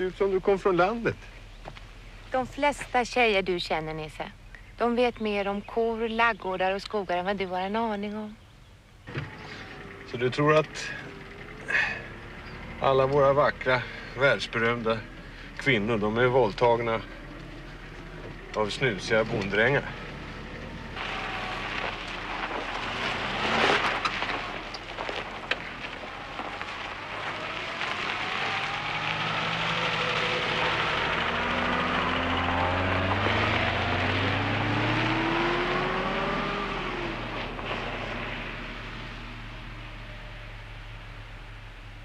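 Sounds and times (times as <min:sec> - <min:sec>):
tyres on gravel road: 0:00.0 - 0:42.0
car engine accelerating: 0:09.0 - 0:42.0.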